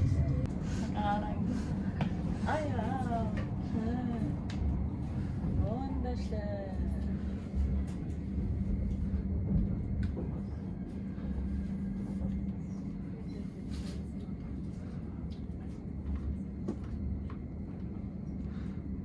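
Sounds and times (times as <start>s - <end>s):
train rumble inside carriage: 0.0s - 19.0s.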